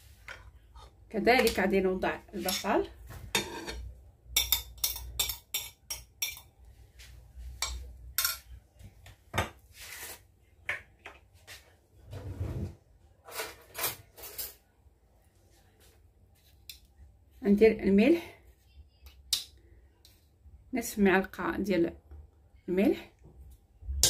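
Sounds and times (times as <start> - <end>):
clatter of kitchenware: 2.4 - 6.5, 13.3 - 14.6.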